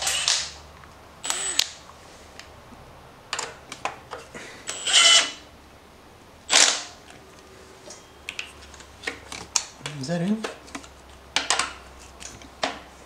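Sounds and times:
impact wrench bursts: 0:00.0 - 0:00.6, 0:01.2 - 0:01.8, 0:04.6 - 0:05.4, 0:06.5 - 0:07.0.

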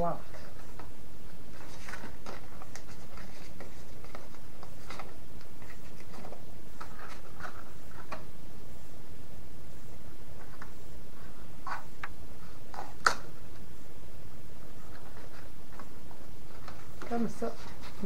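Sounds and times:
paper rustling: 0:00.2 - 0:08.3, 0:14.6 - 0:18.0.

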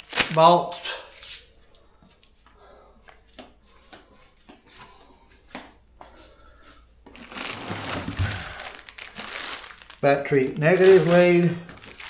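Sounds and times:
plastic packaging crinkling: 0:00.0 - 0:00.5, 0:07.1 - 0:12.0.

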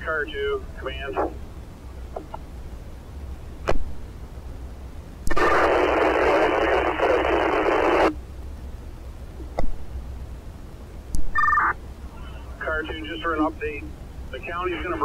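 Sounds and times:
radio static hiss: 0:00.0 - 0:15.0
radio squelch click: 0:12.8 - 0:13.2.

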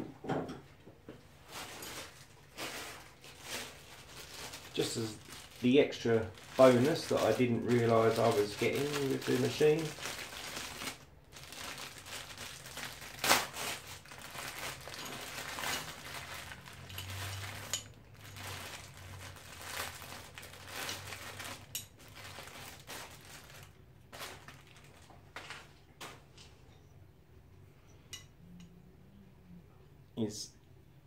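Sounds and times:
plastic packaging crinkling: 0:01.4 - 0:26.3.

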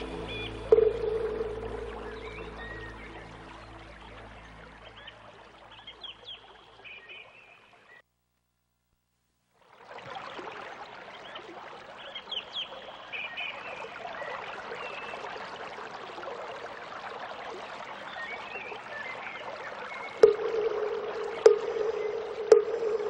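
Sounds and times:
bird chirps: 0:00.0 - 0:08.0, 0:18.1 - 0:23.0
running water hiss: 0:00.0 - 0:08.0.

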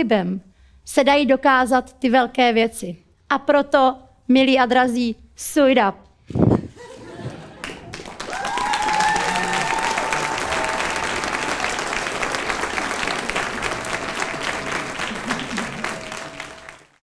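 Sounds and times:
audience clapping: 0:07.1 - 0:17.0
people cheering: 0:07.1 - 0:17.0.

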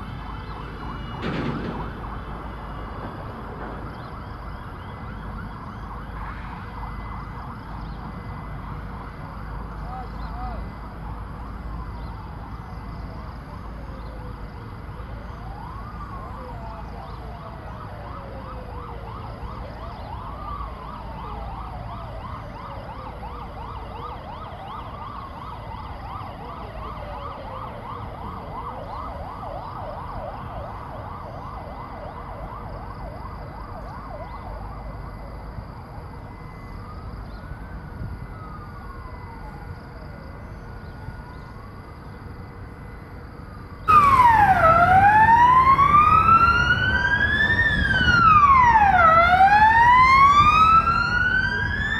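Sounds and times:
engine and traffic rumble: 0:00.0 - 0:51.9
siren wailing: 0:00.0 - 0:51.9
siren yelping: 0:43.9 - 0:51.9.

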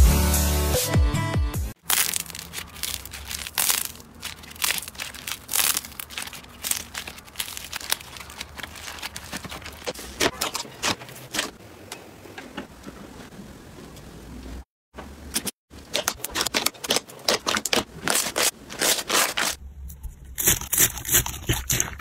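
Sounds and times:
slime crackling and popping: 0:01.8 - 0:09.9.

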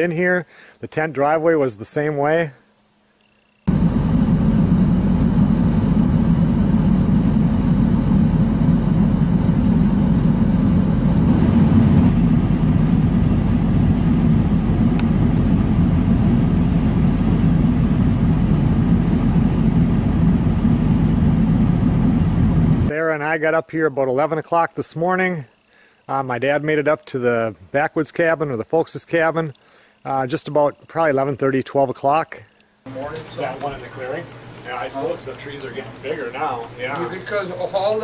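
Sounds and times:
engine running steadily: 0:03.7 - 0:22.9.

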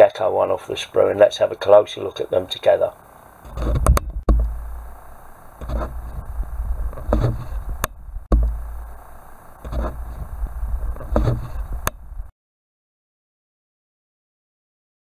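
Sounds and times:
sharp click: 0:03.5 - 0:04.6
plastic parts handling noise: 0:03.5 - 0:12.0.

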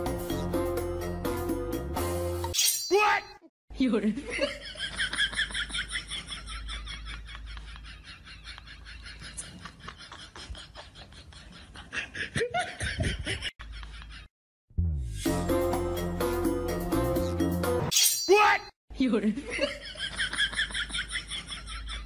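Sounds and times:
person laughing hard: 0:04.3 - 0:14.3.

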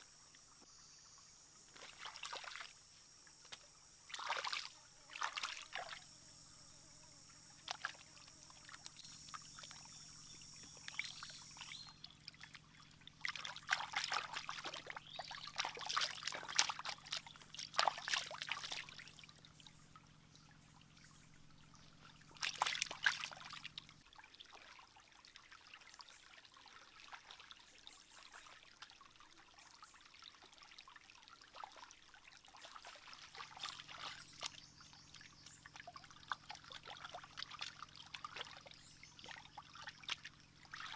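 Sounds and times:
water trickling in stream: 0:00.0 - 0:40.9
splashing water: 0:01.7 - 0:02.8, 0:03.4 - 0:06.0, 0:07.6 - 0:19.5, 0:22.3 - 0:27.7, 0:30.1 - 0:40.9.

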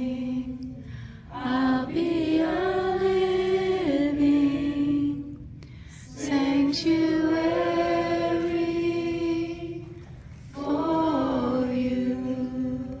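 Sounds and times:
children singing unaccompanied: 0:01.3 - 0:05.4, 0:06.2 - 0:13.0.

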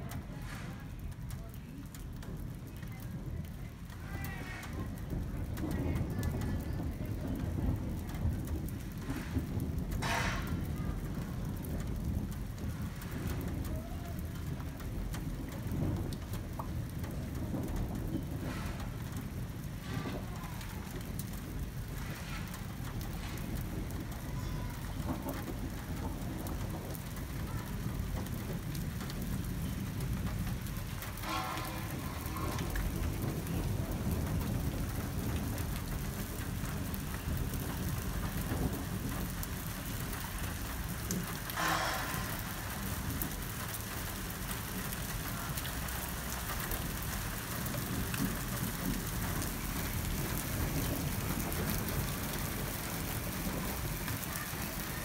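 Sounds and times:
rain on pavement: 0:00.0 - 0:55.0
thunder rumbling: 0:00.0 - 0:55.0.

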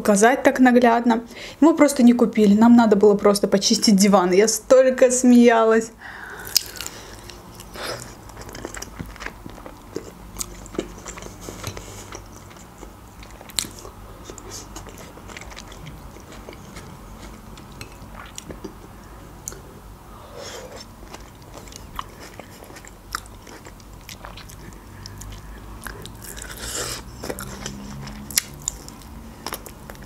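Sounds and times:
close chewing of food: 0:06.4 - 0:19.6, 0:20.3 - 0:30.0.

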